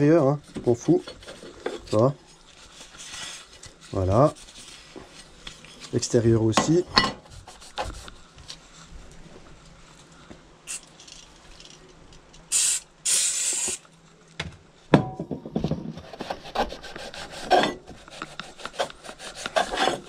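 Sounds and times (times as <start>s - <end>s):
aerosol spray hissing: 12.5s - 13.8s.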